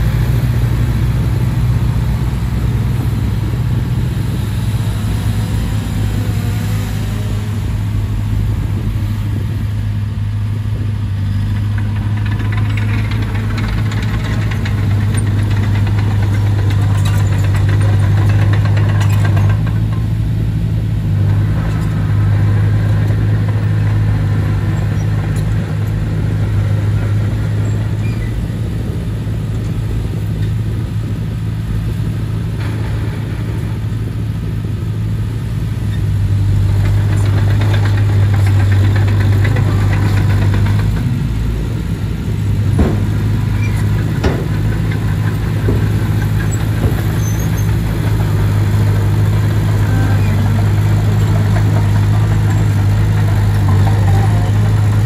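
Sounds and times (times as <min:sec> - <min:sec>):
bulldozer diesel engine running: 0:00.0 - 0:55.0
sharp knocks: 0:42.6 - 0:55.0.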